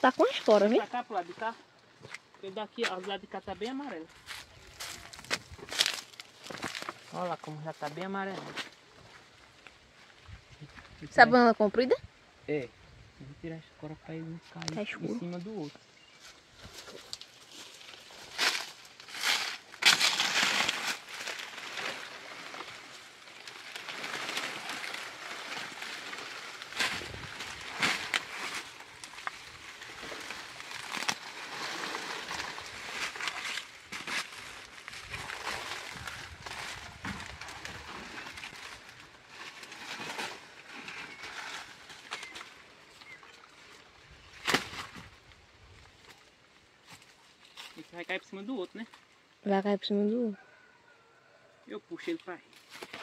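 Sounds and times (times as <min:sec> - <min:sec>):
dry leaves rustling and crackling: 0:00.0 - 0:10.3, 0:14.8 - 0:49.1, 0:52.1 - 0:53.0
bird chirps: 0:15.7 - 0:16.4, 0:42.0 - 0:43.5.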